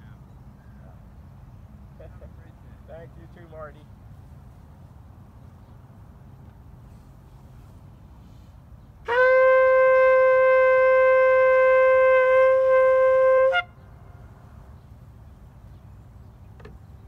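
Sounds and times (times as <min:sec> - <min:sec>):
shofar blast: 0:09.0 - 0:13.8.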